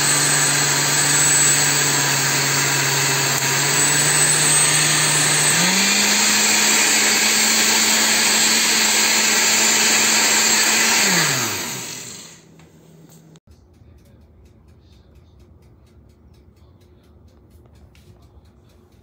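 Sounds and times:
blender motor running: 0.0s - 12.5s.

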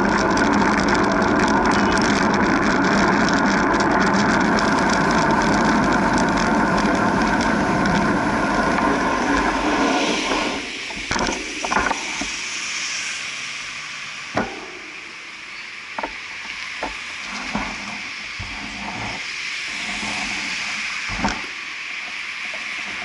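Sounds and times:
passing street traffic: 0.0s - 17.3s
wind and bicycle rolling noise: 0.0s - 23.0s.

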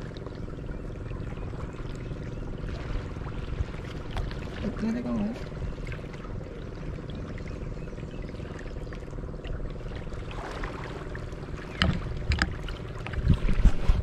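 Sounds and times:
steady low hum: 0.0s - 14.0s
water lapping and splashing: 0.0s - 14.0s.

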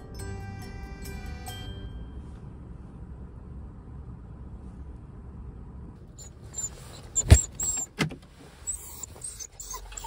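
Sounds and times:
car cabin rumble: 0.5s - 8.7s
small dog whining: 6.2s - 8.0s, 8.6s - 10.0s.

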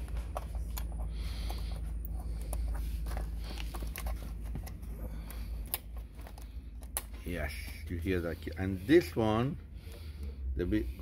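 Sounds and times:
connectors clicking: 0.0s - 7.2s
low steady rumble: 0.0s - 11.0s.

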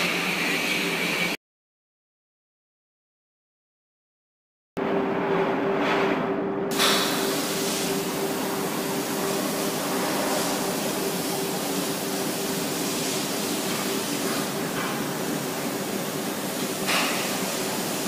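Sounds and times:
loud industrial rushing noise: 4.8s - 18.0s.

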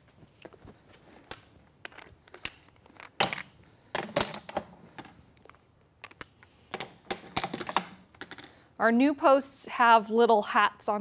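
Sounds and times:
metal posts clicking and knocking: 1.2s - 8.5s.

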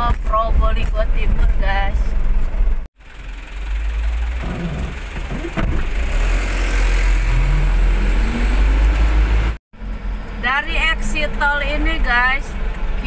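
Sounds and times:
road rumble: 0.0s - 13.0s
car engine accelerating: 3.0s - 10.2s.

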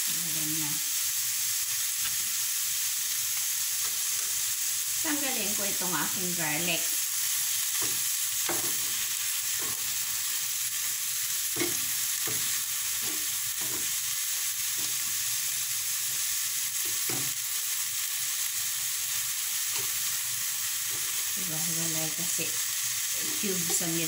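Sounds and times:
spinach sizzling in a frying pan: 0.0s - 24.0s
utensils scraping and tapping pan: 7.8s - 9.9s, 11.5s - 14.0s, 23.2s - 24.0s.

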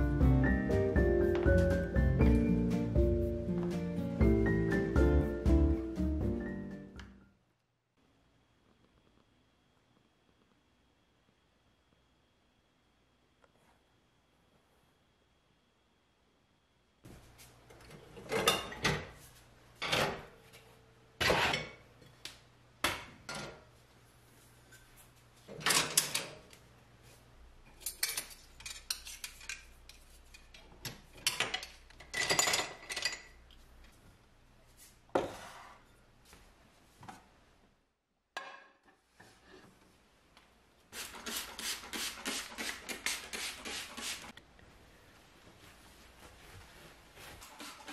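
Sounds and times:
kitchenware clattering and clinking: 17.8s - 19.2s, 25.5s - 26.5s, 27.7s - 33.4s.

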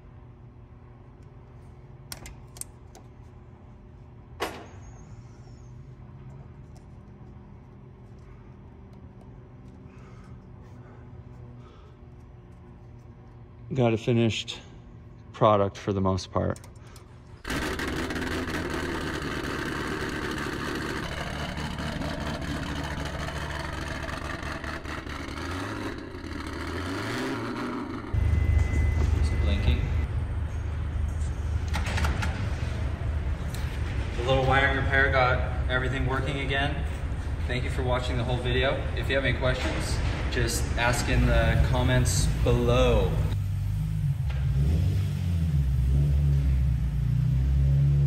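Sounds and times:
steady low hum: 0.0s - 48.0s
car engine idling: 17.5s - 28.9s
faint high ring: 28.2s - 30.0s.

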